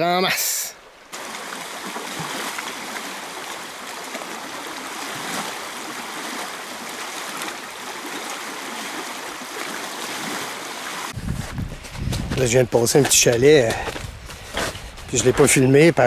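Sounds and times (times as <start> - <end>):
river water rushing through rapids: 1.0 - 11.2.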